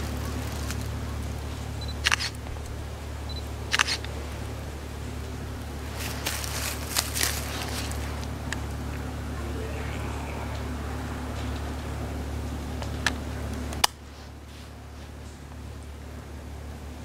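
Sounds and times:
steady low rumble: 0.0 - 17.0
short sharp clicks: 2.0 - 2.4, 3.7 - 4.1.

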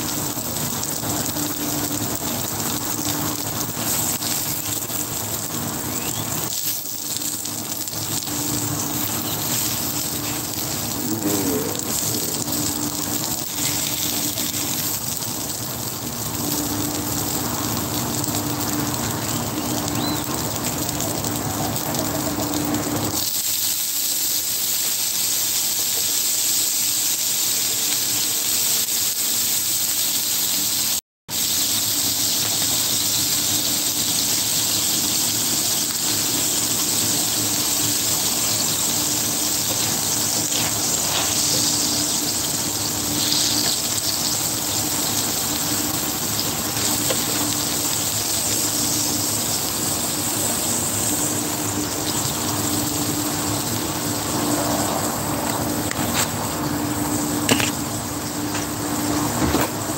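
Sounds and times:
food sizzling on a griddle: 0.0 - 59.9.

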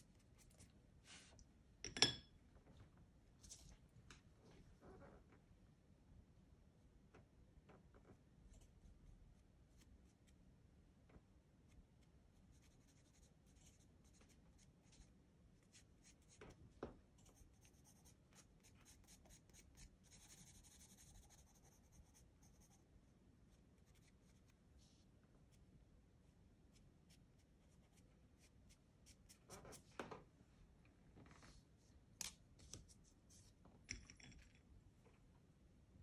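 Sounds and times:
pencil scratching on paper: 12.5 - 16.4, 17.2 - 22.8.

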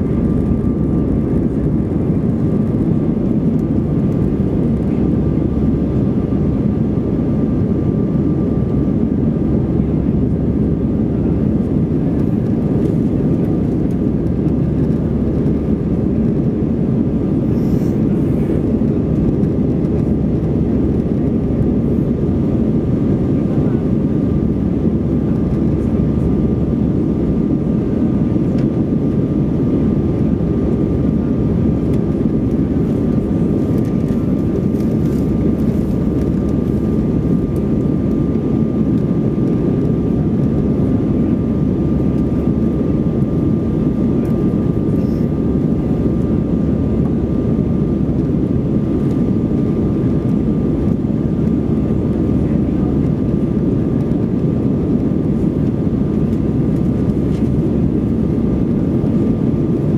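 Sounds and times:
airplane cabin engine rumble: 0.0 - 59.9.

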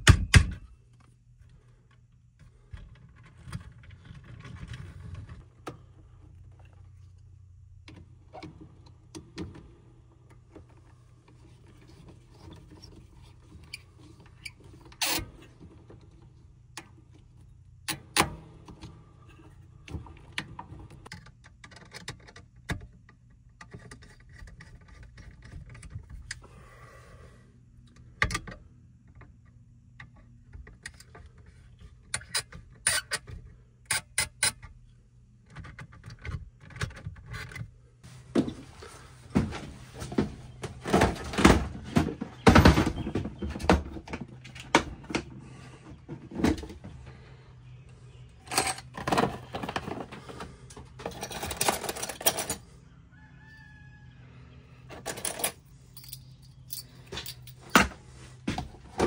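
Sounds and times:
tools clicking and tapping on metal box: 48.5 - 52.6.

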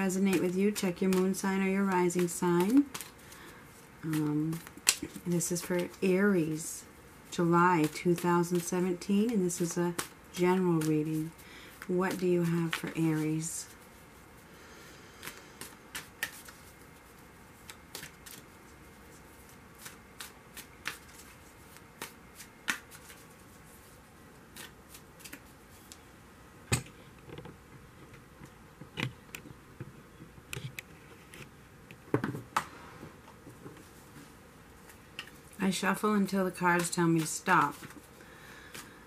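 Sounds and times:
cards being shuffled: 0.0 - 14.0, 15.1 - 26.0, 33.8 - 39.0.

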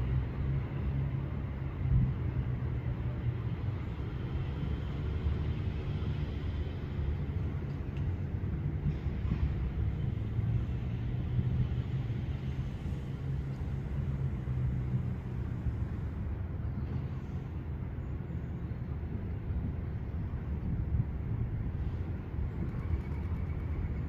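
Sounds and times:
distant engines rumbling: 0.0 - 24.0.

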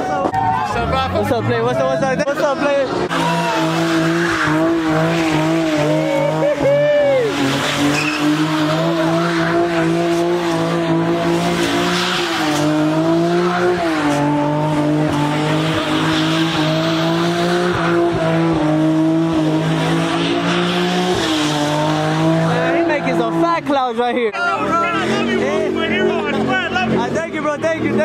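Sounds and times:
car engine revving high: 0.6 - 28.0
tyres squealing: 2.1 - 18.3.

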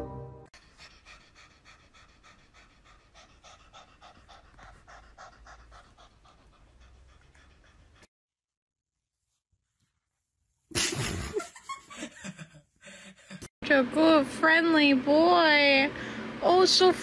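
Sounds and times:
cat panting: 0.6 - 8.1.

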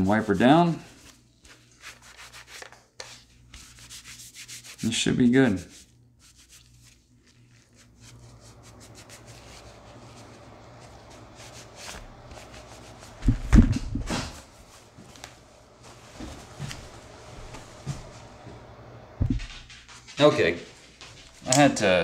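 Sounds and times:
cloth rubbing on a pistol: 0.0 - 18.3
dull thumps on a padded mat: 19.2 - 19.6.

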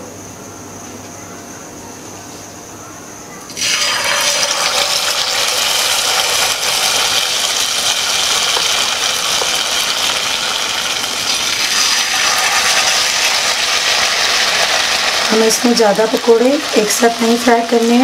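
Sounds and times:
batter sizzling in hot oil: 3.5 - 18.0.

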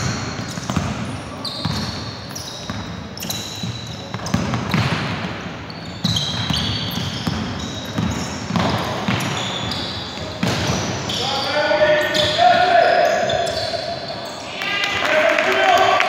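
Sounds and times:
shoes squeaking on hardwood floor: 0.0 - 5.0, 5.6 - 14.5
ball being dribbled: 2.7 - 5.3, 6.0 - 11.2.

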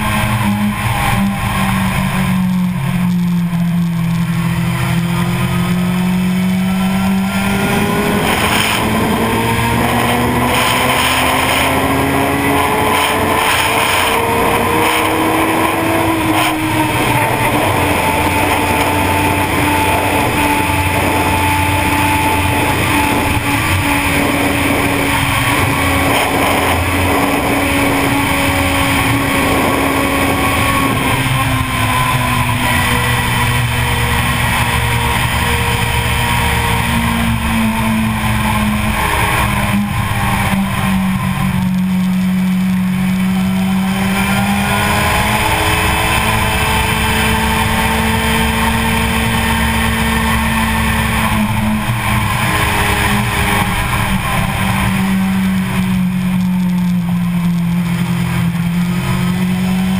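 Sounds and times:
motorcycle engine revving: 0.0 - 59.9
rush of wind: 0.0 - 59.9.

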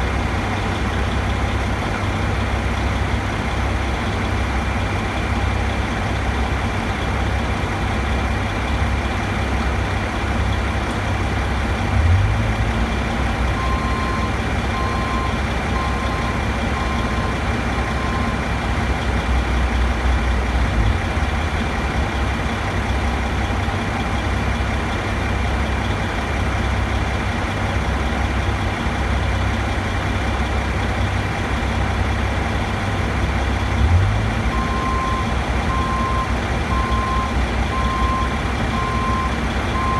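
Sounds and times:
diesel engine idling: 0.0 - 39.9
warning beeps: 13.6 - 18.4.

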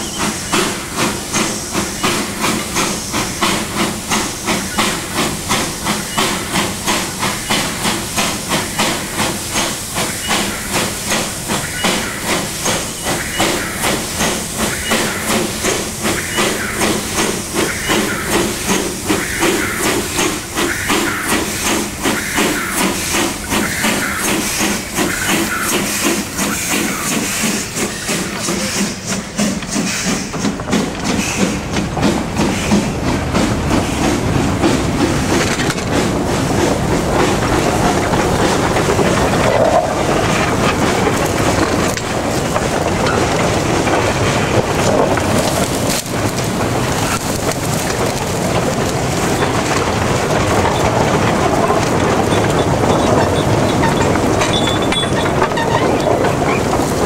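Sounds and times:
steam locomotive rapid beats: 0.0 - 57.0
wagon wheels rumbling on rails: 33.0 - 57.0.

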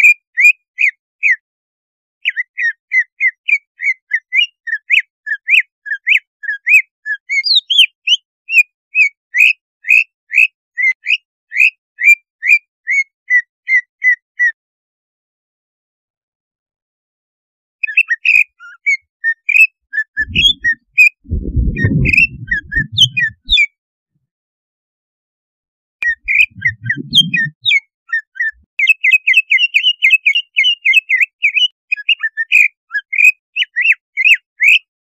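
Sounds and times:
bird chirping and whistling: 20.2 - 23.6, 26.0 - 27.8
low muffled noise: 20.2 - 23.6, 26.2 - 27.5.

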